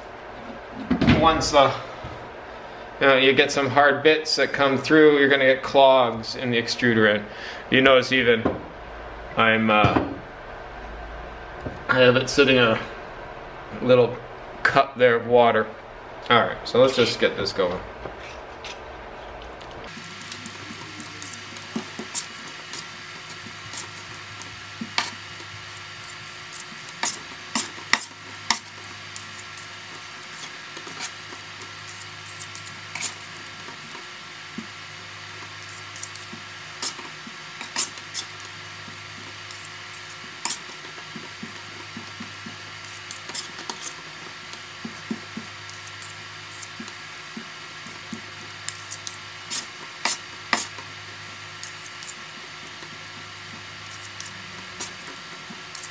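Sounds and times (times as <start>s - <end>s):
steady low hum: 0.0s - 55.9s
putty knives scraping clay: 24.9s - 33.2s, 35.7s - 38.4s, 39.5s - 44.0s.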